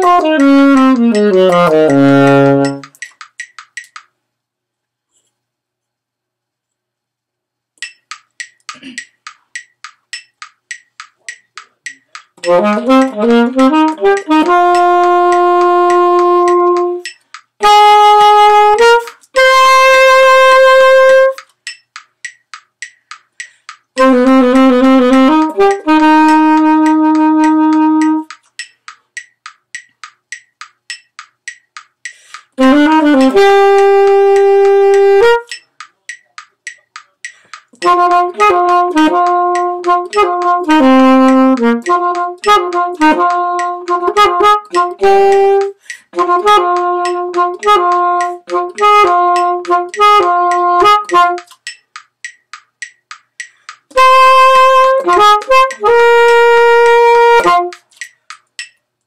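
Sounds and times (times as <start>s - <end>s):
alto saxophone playing: 0.0s - 2.9s, 12.4s - 21.4s, 24.0s - 28.3s, 32.6s - 35.5s, 37.8s - 51.5s, 53.9s - 57.8s
metronome clicks: 0.0s - 4.2s, 7.8s - 59.0s.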